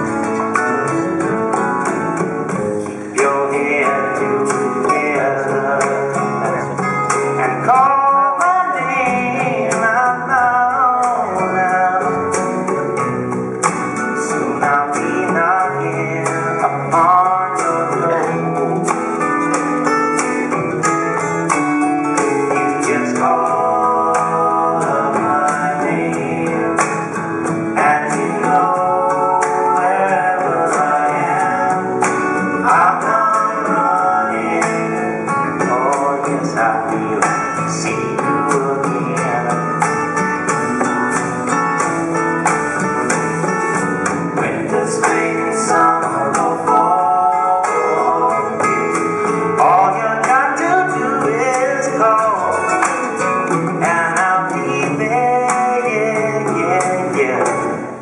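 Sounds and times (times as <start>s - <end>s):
song with singing and a beat: 0.0s - 58.0s.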